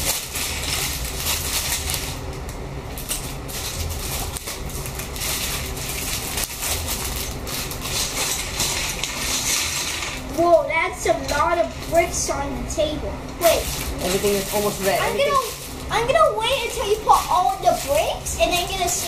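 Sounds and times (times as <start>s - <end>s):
plastic bags crinkling: 0.0s - 10.6s, 13.4s - 19.0s.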